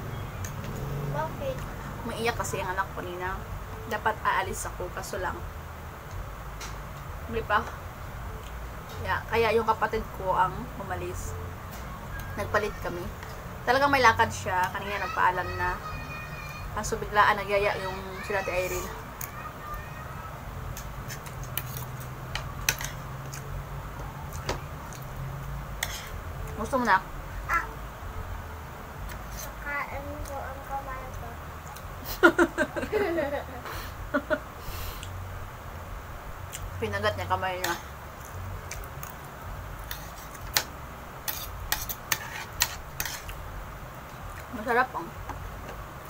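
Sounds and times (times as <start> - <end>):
cutlery scraping on a plate: 21.0 - 23.1, 25.8 - 26.2, 39.8 - 43.4.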